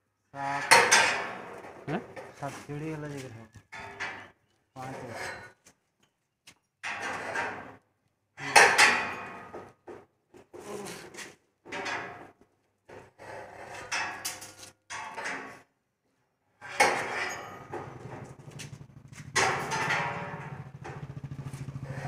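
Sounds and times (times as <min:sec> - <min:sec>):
metal rolling shutter rattling: 0:00.6 - 0:02.5, 0:03.8 - 0:05.6, 0:06.8 - 0:07.8, 0:08.4 - 0:09.9, 0:11.7 - 0:15.7, 0:16.6 - 0:22.0.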